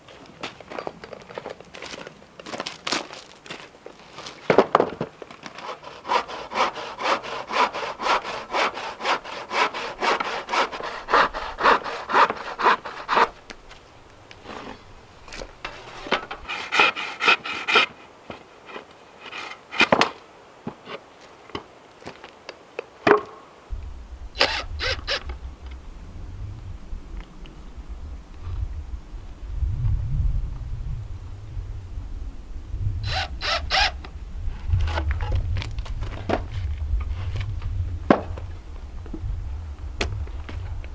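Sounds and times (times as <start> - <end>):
hand saw cutting wood: 5.4 - 13.5, 14.4 - 20.1, 24.4 - 25.2, 33.0 - 34.0.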